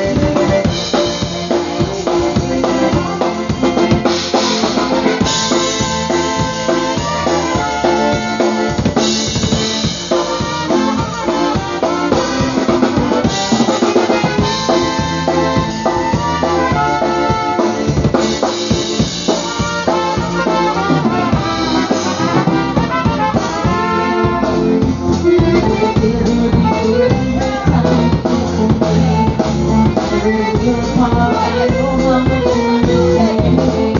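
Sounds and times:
squeezebox melody: 0:00.0 - 0:25.4
drum kit beat: 0:00.0 - 0:33.9.

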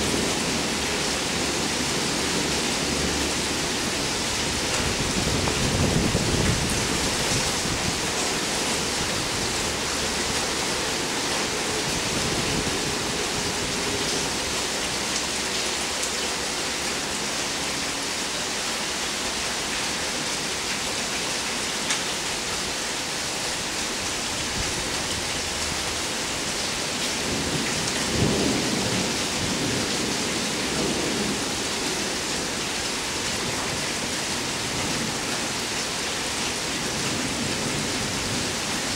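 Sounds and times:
thunder rumbling: 0:00.0 - 0:08.1
steady rain falling: 0:00.0 - 0:38.9.

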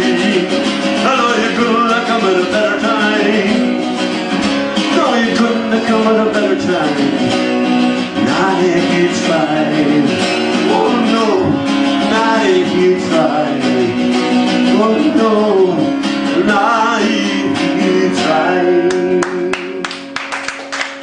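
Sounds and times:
man singing: 0:00.0 - 0:03.9, 0:04.8 - 0:20.2
strummed acoustic guitar: 0:00.0 - 0:20.4
hand-clapping: 0:18.9 - 0:21.0.

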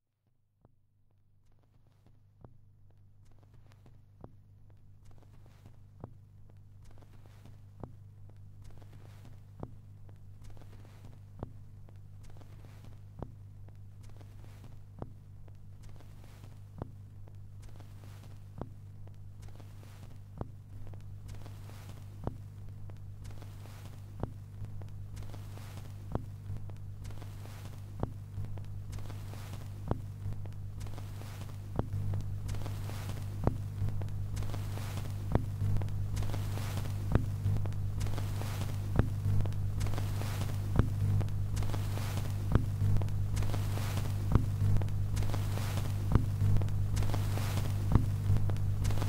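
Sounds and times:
steady low hum: 0:03.4 - 0:49.0.

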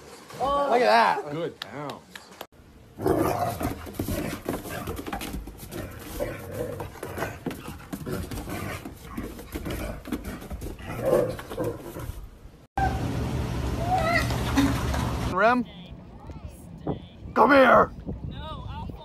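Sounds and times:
paws scuffing on wooden deck: 0:03.4 - 0:12.4.

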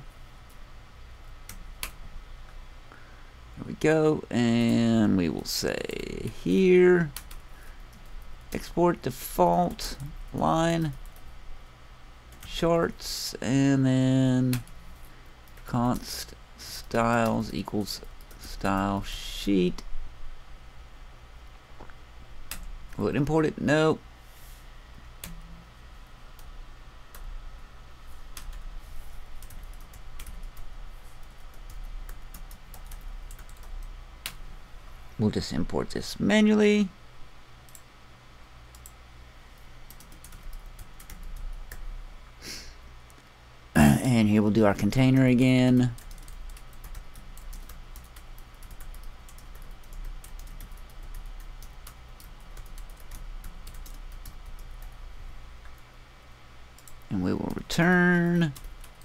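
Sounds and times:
computer keyboard typing: 0:07.0 - 0:08.6, 0:22.5 - 0:22.7, 0:28.3 - 0:28.7, 0:29.4 - 0:34.4, 0:38.7 - 0:39.0, 0:39.9 - 0:41.9, 0:45.1 - 0:55.0, 0:56.8 - 0:57.1, 0:57.8 - 0:59.0.

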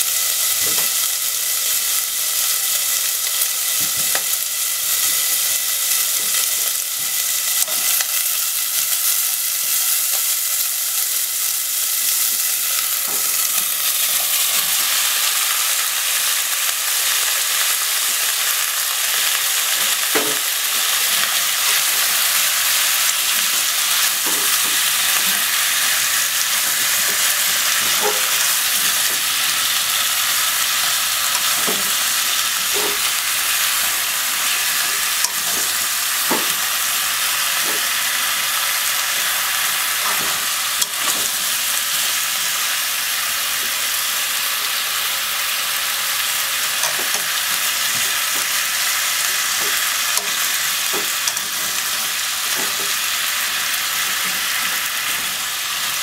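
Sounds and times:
food sizzling in a pot: 0:00.0 - 0:56.0.

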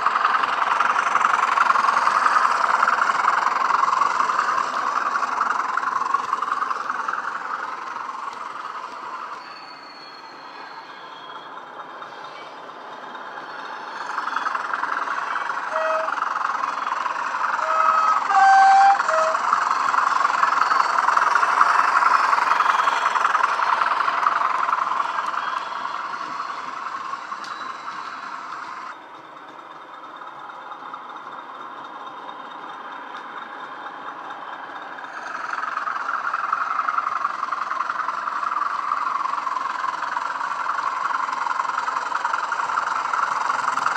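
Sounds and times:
diesel locomotive engine sound: 0:00.0 - 0:43.9
short horn notes: 0:15.7 - 0:16.2, 0:17.6 - 0:19.4.

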